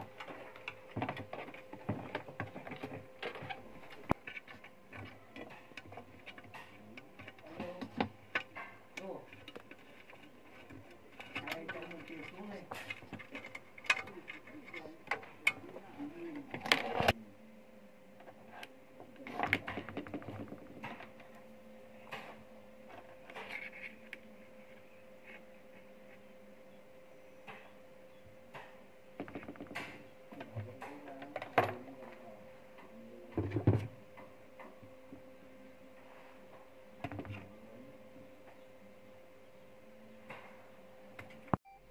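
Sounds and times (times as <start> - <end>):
faint steady hum: 0.0 - 41.9.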